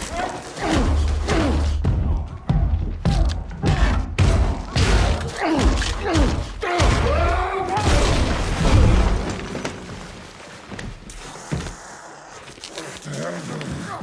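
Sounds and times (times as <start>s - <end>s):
men grunting and straining: 0.0s - 8.2s, 11.2s - 14.0s
body crashing through plaster wall: 4.2s - 10.1s.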